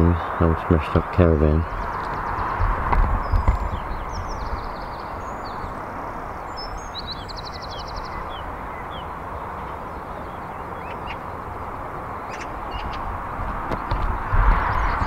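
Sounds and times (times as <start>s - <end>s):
low outdoor rush: 0.0s - 15.0s
small birds chirping: 0.0s - 15.0s
bird trill: 1.6s - 13.1s.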